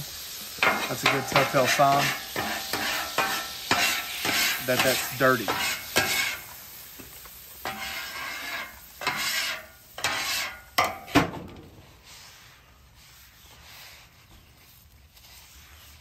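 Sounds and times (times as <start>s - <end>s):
scrubbing pad on griddle: 0.0s - 16.0s
water sizzling on hot griddle: 0.0s - 16.0s
paper towel rubbing: 12.1s - 16.0s.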